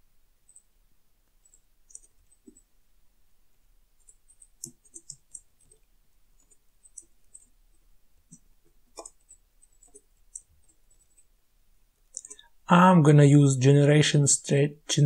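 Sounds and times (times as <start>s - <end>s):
keyboard typing: 0.4s - 0.7s, 1.3s - 2.8s, 4.0s - 11.4s, 12.0s - 12.5s.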